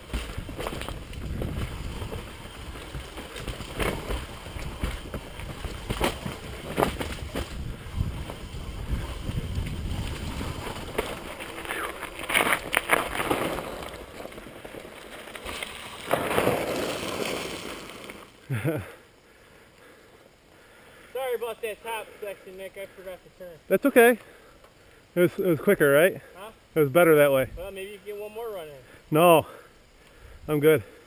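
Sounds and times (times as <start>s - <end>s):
wind buffeting microphone: 0.0s - 11.2s
bike rattling and knocking: 0.0s - 17.9s
bike tyres rumbling over dirt: 0.0s - 19.0s
tyres rolling on gravel: 0.0s - 19.5s.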